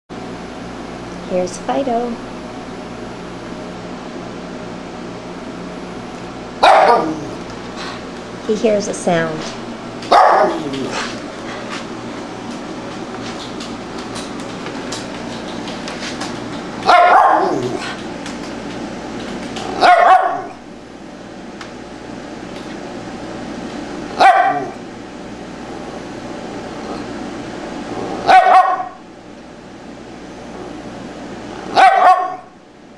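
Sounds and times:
dog barking: 6.6 - 7.4, 10.1 - 11.1, 16.8 - 17.8, 19.8 - 20.6, 24.2 - 24.8, 28.2 - 29.0, 31.7 - 32.5.

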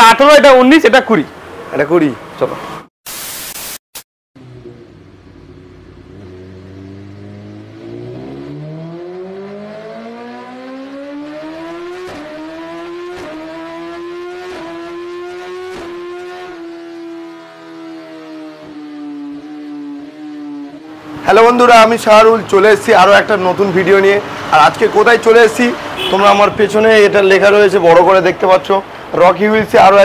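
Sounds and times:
burst of hiss: 3.1 - 3.8
engine revving up: 4.4 - 21.7.

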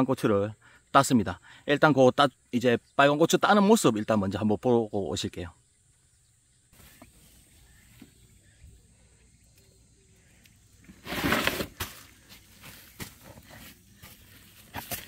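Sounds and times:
plants rustling: 6.8 - 8.3, 10.7 - 15.0.

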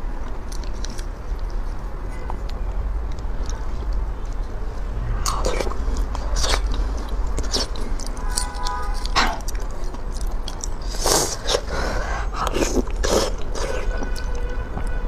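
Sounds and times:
low steady hum: 0.0 - 10.8.

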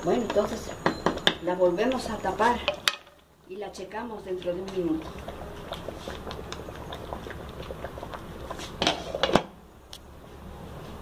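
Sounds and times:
sauce simmering and popping: 4.2 - 10.1.

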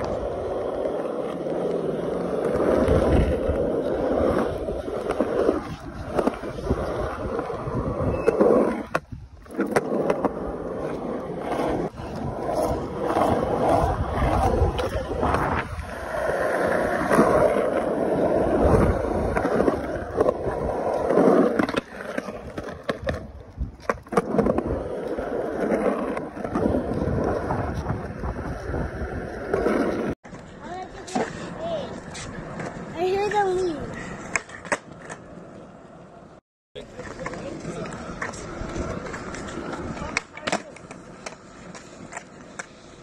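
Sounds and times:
skateboard wheels rolling on concrete: 0.0 - 43.0
skateboard clacks: 36.8 - 42.9.

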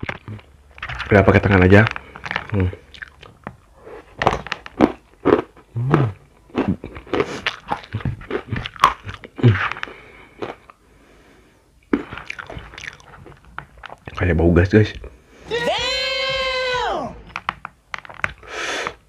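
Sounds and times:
crunching and chewing: 0.0 - 10.9, 11.8 - 14.4, 17.4 - 19.0.

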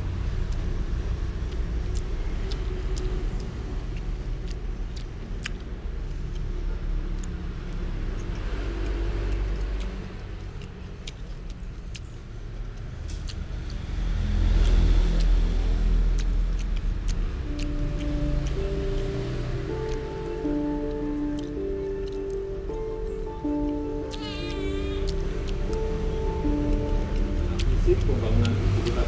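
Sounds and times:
steady low rumble: 9.6 - 29.0.

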